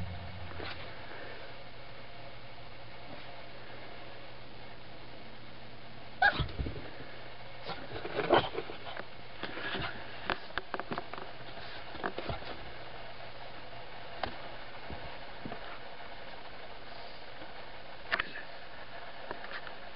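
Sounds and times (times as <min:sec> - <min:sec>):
dog yapping: 0:06.2 - 0:06.5.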